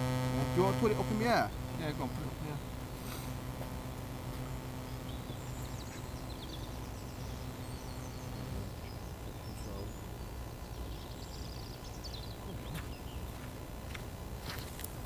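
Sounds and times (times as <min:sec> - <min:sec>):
low steady hum: 0:00.0 - 0:15.0
bird chirps: 0:04.7 - 0:13.4.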